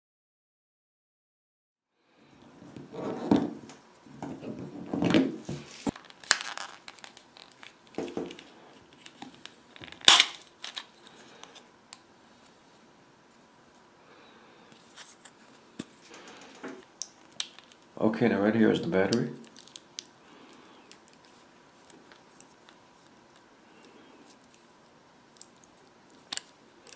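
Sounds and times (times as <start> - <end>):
plastic scraping and rubbing: 2.6 - 10.0.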